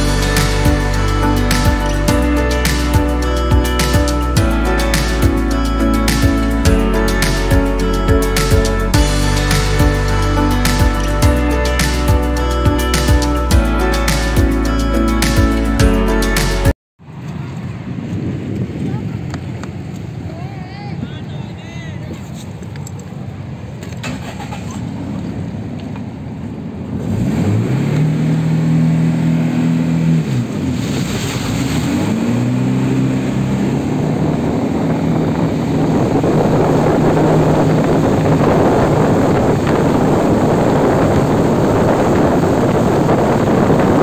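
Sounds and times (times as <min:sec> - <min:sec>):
jet ski engine: 0:00.0 - 0:16.7, 0:26.6 - 0:44.0
water spray and wind rushing: 0:00.0 - 0:44.0.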